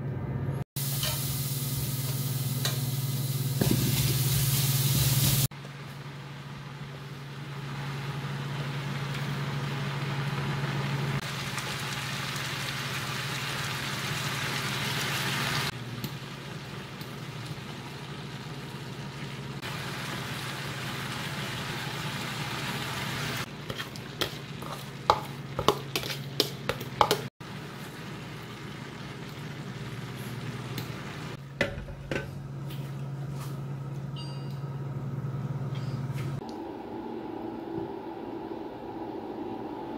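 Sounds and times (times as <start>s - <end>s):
food sizzling in oil: 0.8s - 5.5s, 7.3s - 31.4s
metal spoon scraping a pan: 23.7s - 27.2s.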